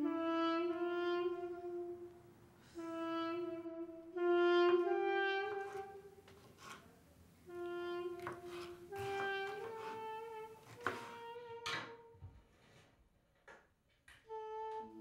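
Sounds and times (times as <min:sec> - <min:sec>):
wind instrument slow melody: 0:00.0 - 0:06.3, 0:07.4 - 0:12.2, 0:14.2 - 0:15.0.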